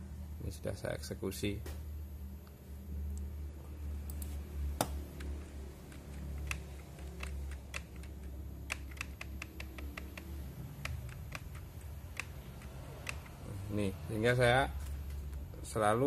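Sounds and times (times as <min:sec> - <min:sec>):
steady low hum: 0:00.0 - 0:16.0
keyboard key presses: 0:04.1 - 0:13.4.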